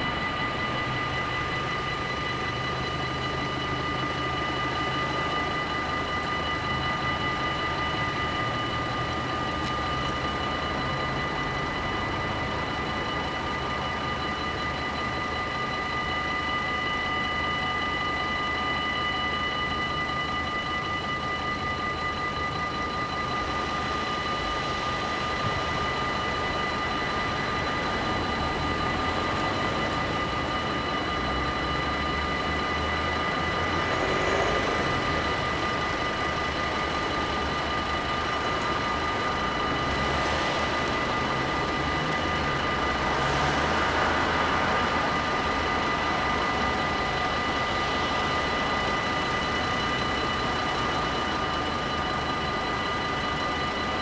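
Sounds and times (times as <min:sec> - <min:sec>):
level crossing warning bells: 0:00.0 - 0:54.0
low rumble of traffic: 0:23.3 - 0:54.0.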